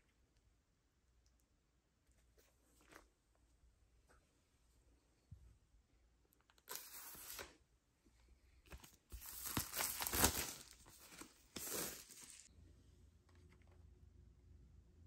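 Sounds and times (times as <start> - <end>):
packaging tearing and crinkling: 9.1 - 12.5.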